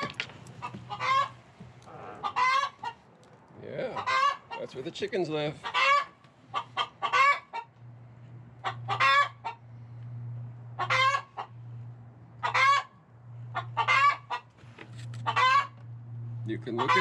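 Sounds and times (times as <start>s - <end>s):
chickens clucking: 0.0s - 3.1s, 3.9s - 4.8s, 5.5s - 9.8s, 10.6s - 11.7s, 12.3s - 14.6s, 15.2s - 15.9s, 16.5s - 17.0s.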